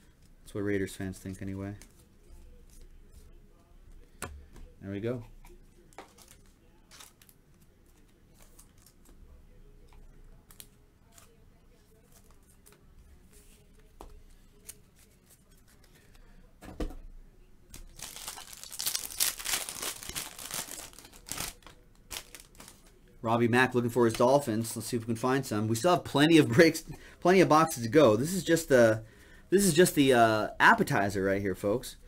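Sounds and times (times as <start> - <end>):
foil wrapper tearing and crinkling: 17.8 - 22.8.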